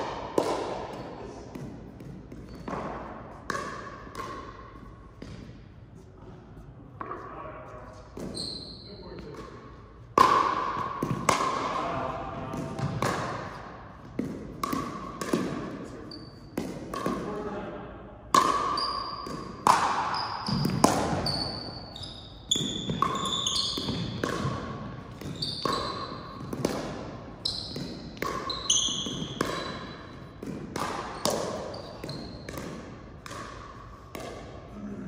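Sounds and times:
ball hits and thuds: 0.0 - 4.5, 10.1 - 11.8, 12.4 - 15.9, 16.5 - 17.3, 18.3 - 21.6, 22.5 - 34.6
high squeaks: 8.2 - 9.1, 20.1 - 24.2, 25.2 - 26.4, 27.4 - 30.0.

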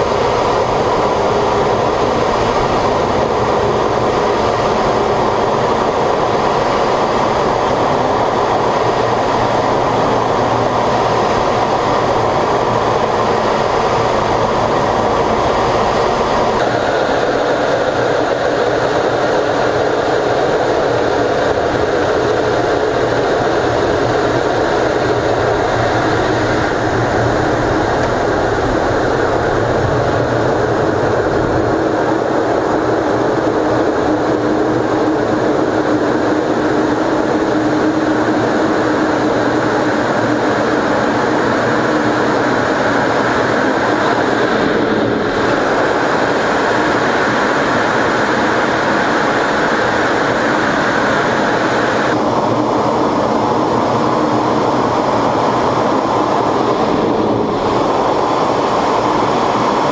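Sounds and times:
jet engine roar in cockpit: 0.0 - 59.9.

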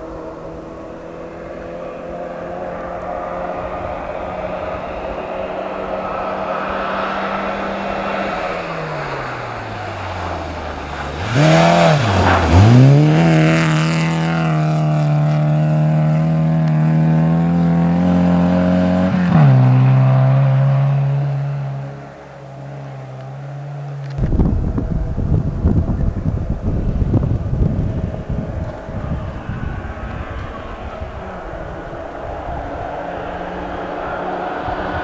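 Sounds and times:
rally car engine revving: 0.0 - 35.0.

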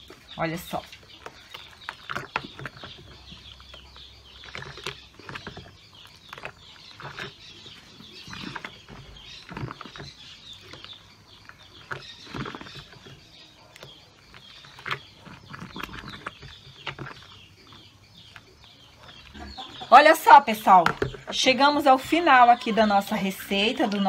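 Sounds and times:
chickens clucking: 11.6 - 20.5.

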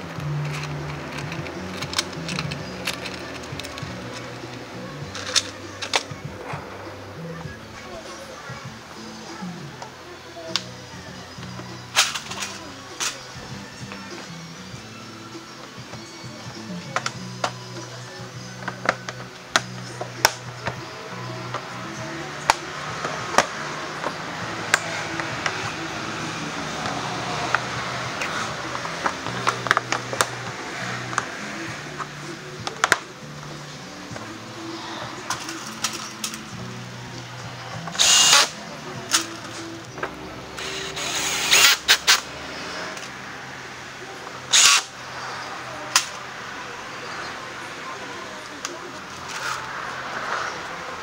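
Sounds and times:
impact driver bursts: 37.9 - 38.6, 40.6 - 42.2, 44.5 - 44.9.

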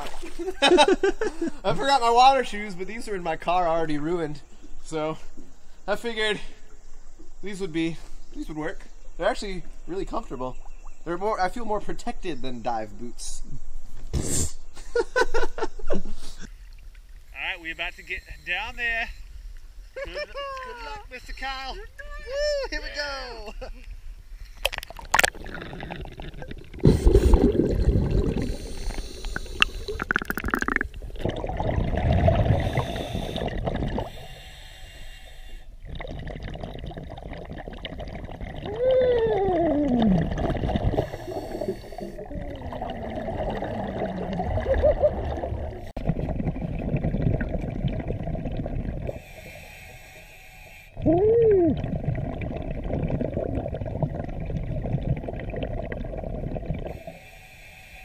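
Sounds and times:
exhaled bubbles gurgling: 24.6 - 34.4, 35.7 - 50.2, 50.9 - 57.3
diver regulator breathing: 26.8 - 30.6, 32.4 - 35.8, 40.7 - 42.3, 49.0 - 51.1, 56.8 - 58.0.

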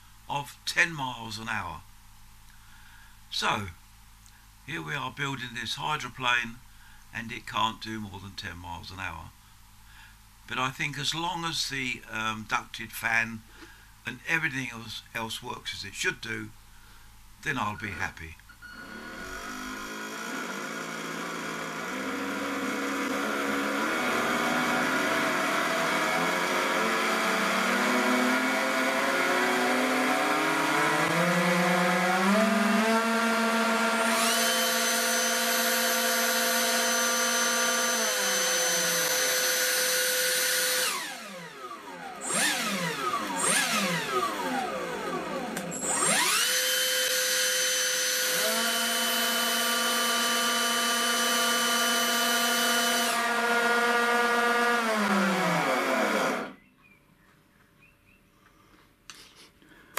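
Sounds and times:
electric motors whining: 18.6 - 56.6.

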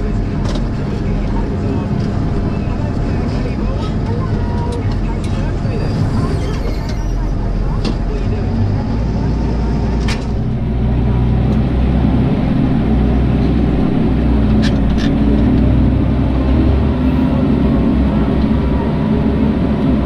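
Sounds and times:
tractor engine under load: 0.0 - 20.0.

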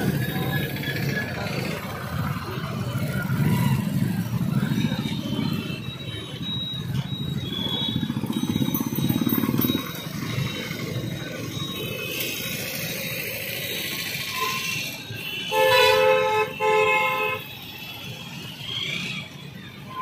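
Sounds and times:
vehicle engine pulsing: 0.0 - 14.2
steady traffic noise: 0.0 - 20.0
vehicle horn honking: 14.3 - 17.5.

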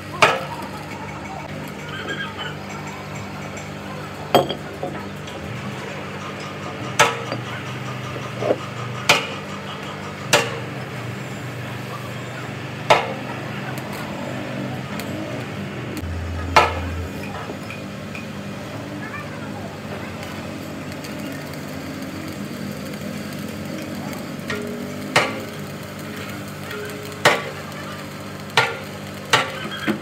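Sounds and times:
low machine hum: 0.0 - 29.9
hammer striking metal: 10.3 - 10.7, 16.0 - 18.4.

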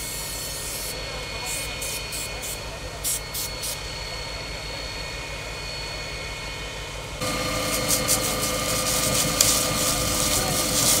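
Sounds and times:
fire truck engine and pump droning: 0.0 - 11.0
hose spraying water: 7.2 - 11.0.

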